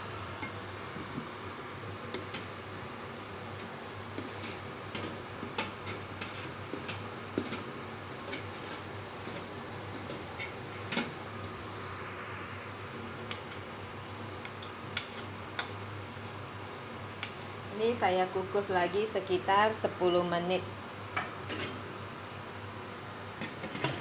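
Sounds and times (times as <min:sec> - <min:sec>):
spatula scraping steamer tray: 0:04.2 - 0:07.6, 0:08.2 - 0:11.1
steady hiss: 0:11.1 - 0:15.4.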